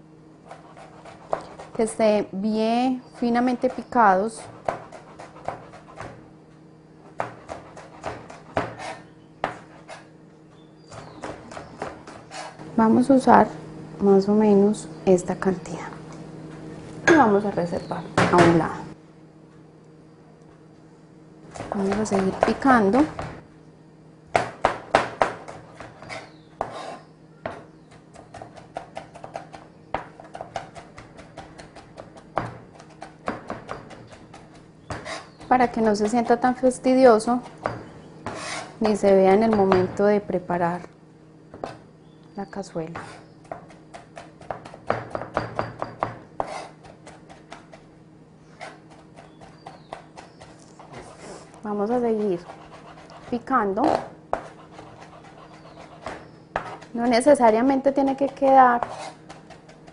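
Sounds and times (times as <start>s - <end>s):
knife chopping on cutting board: 4.4s - 6.2s, 7.2s - 10.0s, 21.5s - 23.4s, 24.3s - 36.4s, 37.4s - 40.0s, 42.9s - 47.9s, 52.1s - 57.3s, 58.2s - 59.9s.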